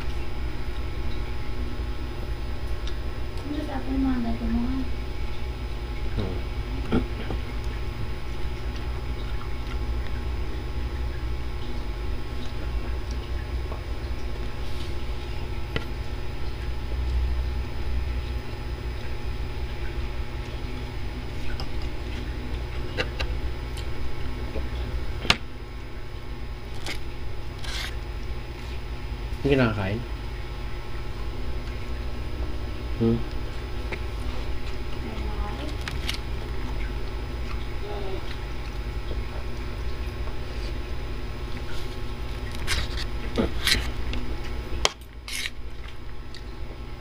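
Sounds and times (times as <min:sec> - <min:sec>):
steady low hum: 0:00.0 - 0:47.0
chewing and eating: 0:06.2 - 0:17.2, 0:33.3 - 0:46.6.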